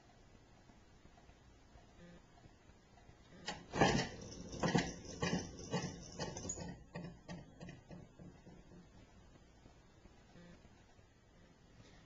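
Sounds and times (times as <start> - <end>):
wooden clockwork clacks: 3.6 - 9.0.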